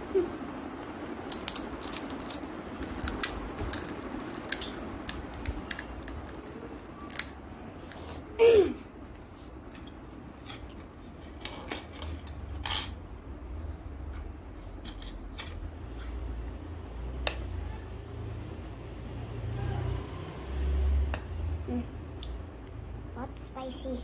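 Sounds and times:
crisp shell crackling: 1.2 - 8.0.

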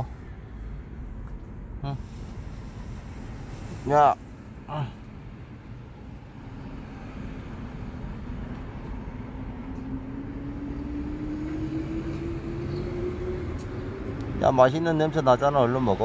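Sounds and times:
vehicle engine rumble: 0.0 - 16.0
hum rising in pitch: 9.0 - 14.3.

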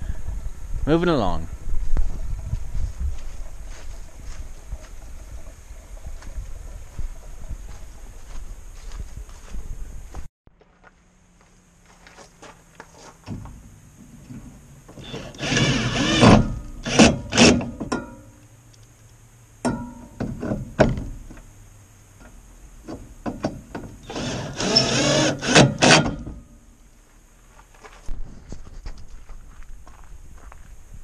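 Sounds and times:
squeaky scraping rubbing: 14.4 - 17.6.

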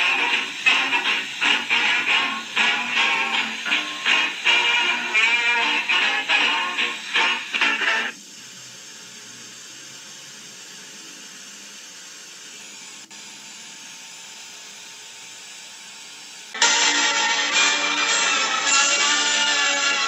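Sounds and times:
guitar background music: 0.0 - 8.1, 16.6 - 20.0
static hiss: 0.0 - 13.4, 16.5 - 20.0.

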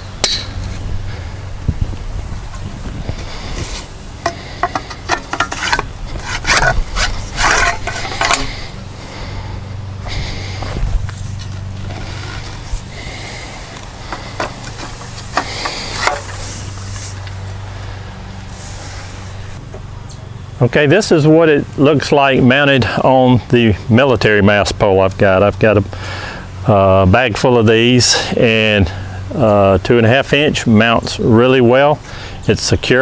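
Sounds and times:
steady low hum: 0.0 - 32.9
metal poles clicking and scraping: 3.6 - 8.8, 10.2 - 19.2.

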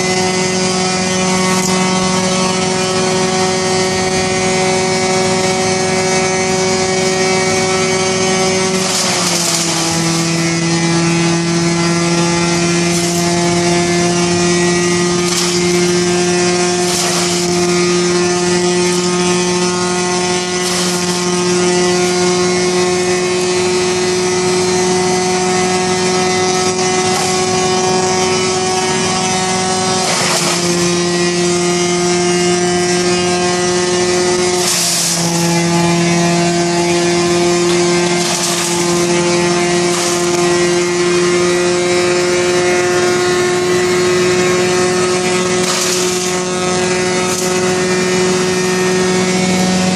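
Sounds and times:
wood chipper running: 0.0 - 49.9
branches crackling in chipper: 8.1 - 21.8.

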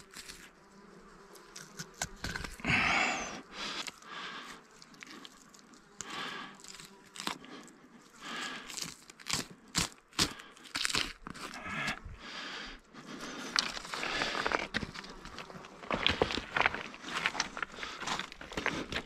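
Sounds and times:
knife slicing flesh: 1.5 - 2.6, 4.7 - 7.5, 8.6 - 11.9.

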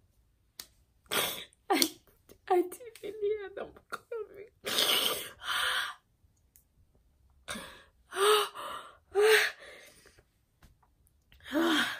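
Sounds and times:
woman sobbing: 3.2 - 5.7.

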